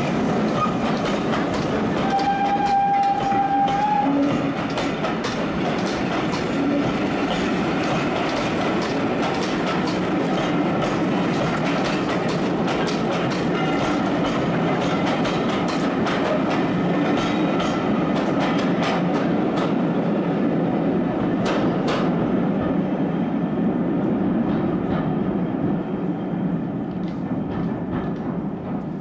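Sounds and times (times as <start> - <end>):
steam train rumbling past: 0.0 - 29.0
wheels clicking over rail joints: 0.4 - 19.8
steam whistle: 2.0 - 4.4.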